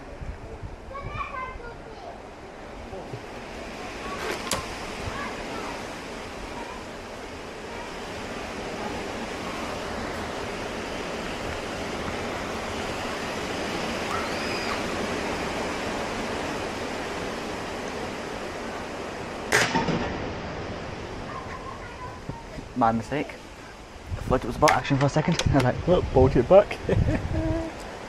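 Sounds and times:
wind noise on microphone: 0:00.0 - 0:02.0, 0:02.7 - 0:18.6, 0:19.8 - 0:22.8, 0:23.7 - 0:28.0
air rifle shot: 0:19.5 - 0:20.6.

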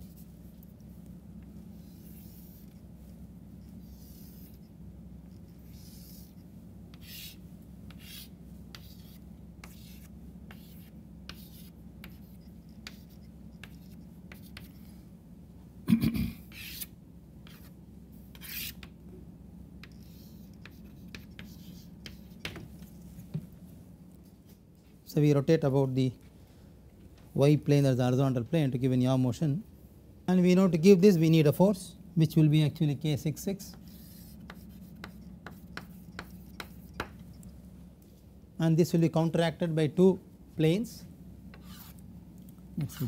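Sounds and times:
steady low hum: 0:00.0 - 0:43.0
chalk scratching on chalkboard: 0:01.8 - 0:02.9, 0:03.6 - 0:04.7, 0:05.3 - 0:14.9, 0:16.5 - 0:18.9, 0:19.8 - 0:22.6, 0:33.6 - 0:37.5, 0:41.6 - 0:42.0, 0:42.8 - 0:43.0.

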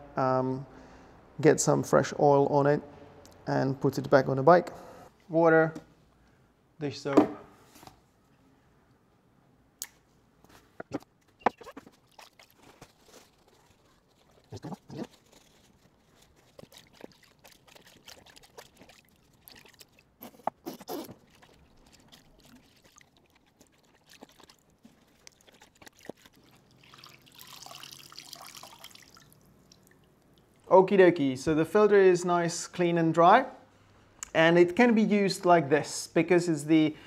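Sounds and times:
water splashing in plastic bowl: 0:11.4 - 0:30.7.

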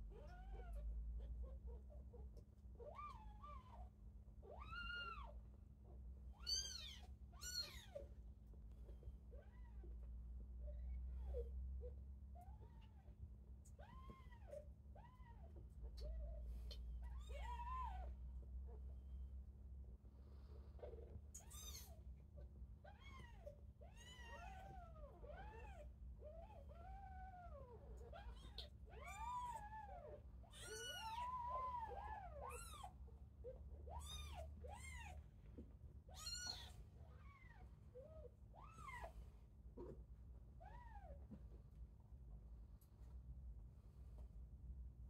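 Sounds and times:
kittens mewing: 0:06.3 - 0:08.1, 0:20.8 - 0:22.0, 0:22.8 - 0:39.2.

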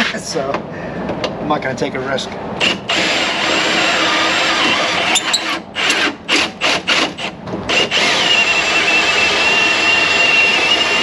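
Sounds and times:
cordless drill whining: 0:02.6 - 0:11.0.

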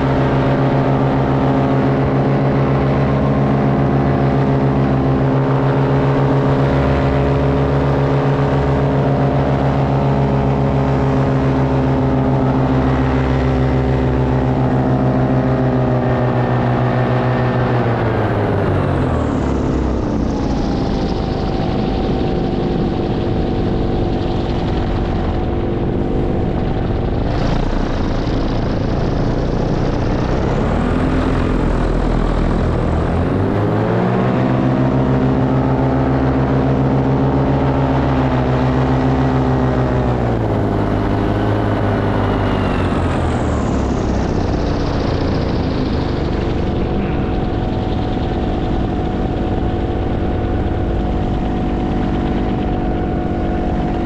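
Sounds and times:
paramotor engine and propeller: 0:00.0 - 0:54.0.

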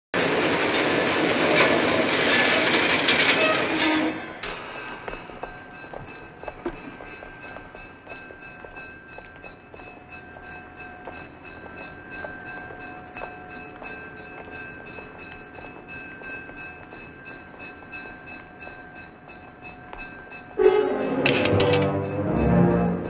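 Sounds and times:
rail yard background: 0:00.2 - 0:23.0
railroad crossing bell ringing: 0:04.2 - 0:23.0
loud film score music: 0:20.7 - 0:23.0.

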